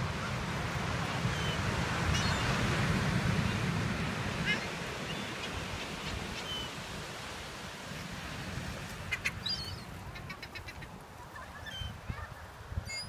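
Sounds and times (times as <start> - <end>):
wind: 0.0 - 13.0
seagulls calling: 9.0 - 13.0.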